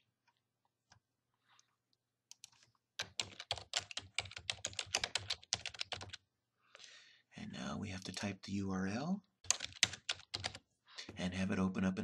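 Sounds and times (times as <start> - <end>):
typing on computer keyboard: 2.3 - 6.2, 9.4 - 10.6.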